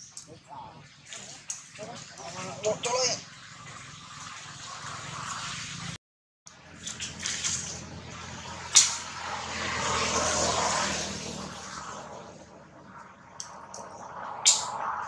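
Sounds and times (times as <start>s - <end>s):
motor vehicle passing: 0.0s - 15.0s
sharp click: 13.4s - 14.8s.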